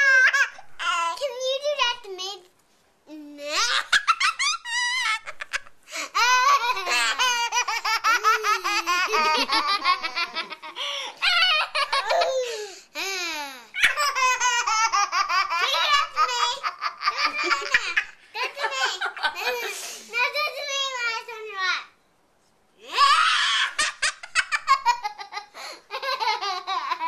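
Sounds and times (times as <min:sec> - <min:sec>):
young child laughing: 0:03.4 - 0:20.6, 0:22.8 - 0:27.0
baby laughing: 0:03.5 - 0:19.8, 0:23.0 - 0:27.0.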